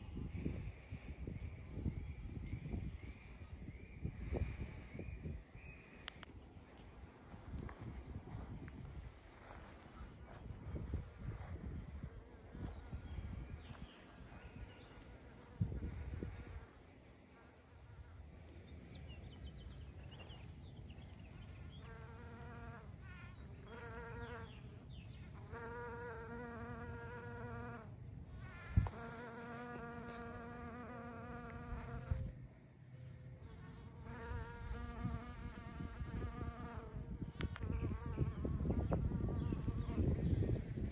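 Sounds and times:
bumblebee buzzing: 21.3 - 32.3, 33.4 - 40.9.

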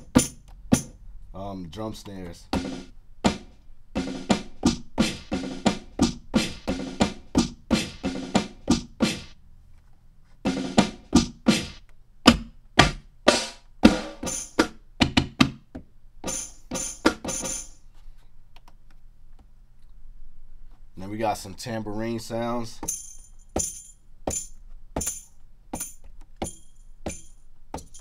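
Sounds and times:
snare drum hits: 2.6 - 9.3.

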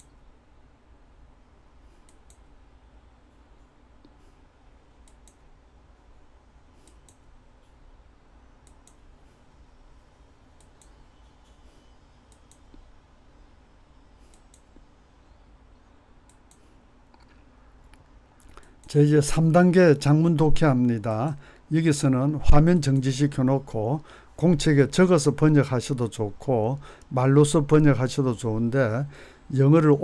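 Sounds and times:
low steady hum: 0.0 - 30.0
computer mouse clicks: 2.0 - 2.5, 5.0 - 5.5, 6.8 - 7.8, 8.6 - 9.1, 10.6 - 11.7, 12.3 - 12.9, 14.2 - 14.8, 16.2 - 19.0.

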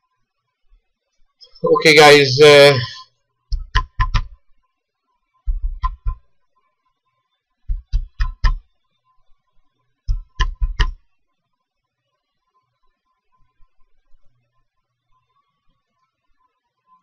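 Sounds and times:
computer keyboard typing: 3.5 - 4.4, 5.5 - 6.2, 7.7 - 8.6, 10.1 - 11.0.

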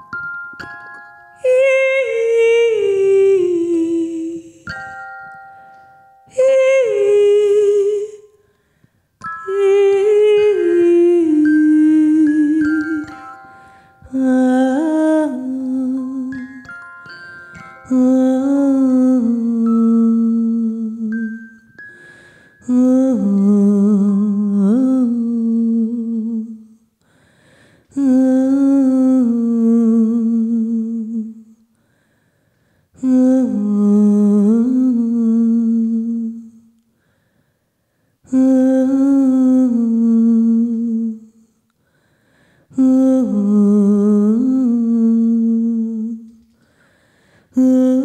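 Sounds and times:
woman humming: 1.4 - 5.0, 47.6 - 48.0.

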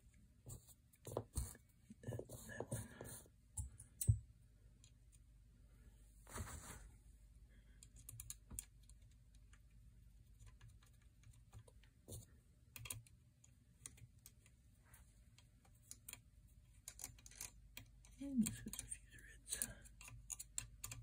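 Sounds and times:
small metal clicks and ticks: 7.8 - 9.7, 15.3 - 21.0.

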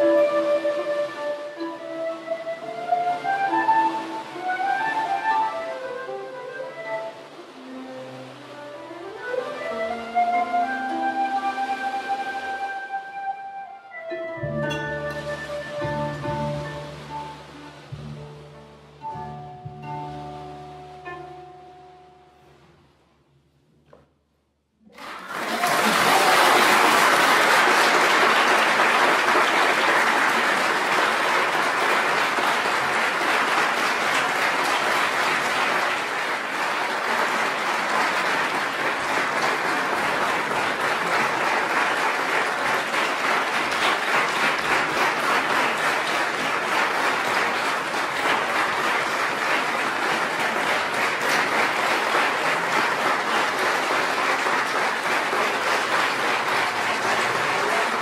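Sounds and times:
audience applauding: 0.0 - 1.7, 24.9 - 58.0.

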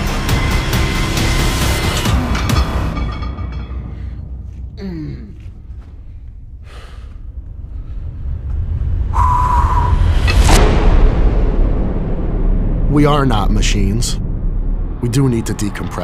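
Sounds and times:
low steady rumble: 2.9 - 16.0
man grunting and breathing: 4.8 - 5.6.

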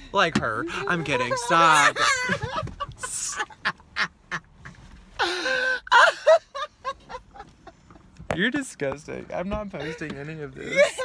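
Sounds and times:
men laughing: 0.7 - 8.2, 9.8 - 11.0
high-pitched cry of laughter: 0.9 - 3.5, 5.5 - 7.2.

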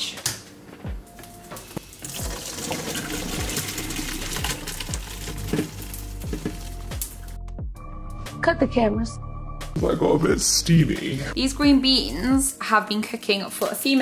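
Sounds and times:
background music beat: 0.0 - 14.0
water pouring into a colander: 1.8 - 6.8.

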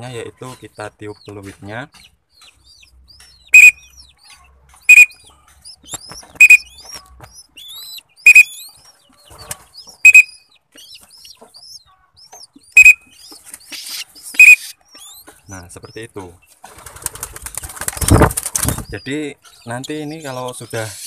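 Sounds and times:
young pigeon squeaky peeps: 0.0 - 21.0
short sharp whistle blasts: 3.6 - 3.8, 6.4 - 6.7, 8.3 - 8.5, 10.0 - 10.4, 14.4 - 14.8.

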